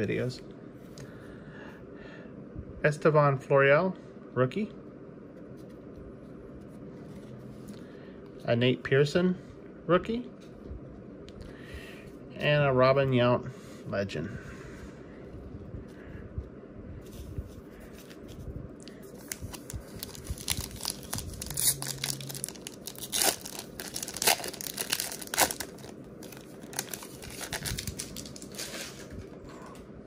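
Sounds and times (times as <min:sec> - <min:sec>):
foil wrapper tearing and crinkling: 0:19.2 - 0:28.9.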